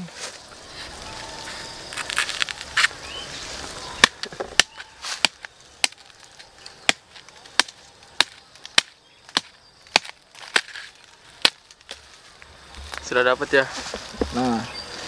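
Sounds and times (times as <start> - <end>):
knife chopping bamboo shoot: 4.0 - 6.1, 6.8 - 10.8.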